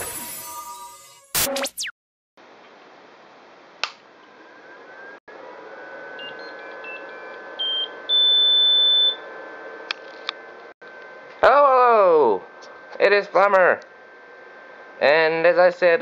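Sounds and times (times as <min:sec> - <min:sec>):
printer beeps: 0:06.2 - 0:09.2
steady hum: 0:09.2 - 0:16.0.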